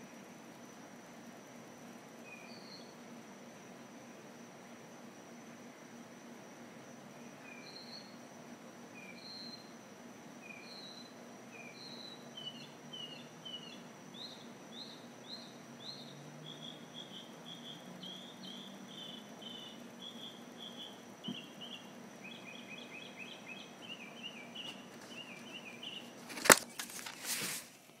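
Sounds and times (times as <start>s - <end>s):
faint steady high whine: 0.0s - 28.0s
mockingbird singing: 10.4s - 26.2s
rustling: 24.7s - 28.0s.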